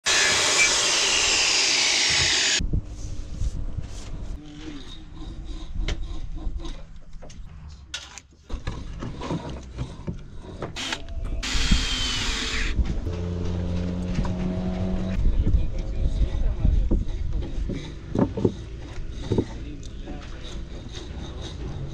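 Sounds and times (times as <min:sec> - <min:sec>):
knocks and scrapes of wooden boards: 0:05.4 - 0:10.8, 0:16.6 - 0:21.9
cordless drill driving screw: 0:10.8 - 0:12.8.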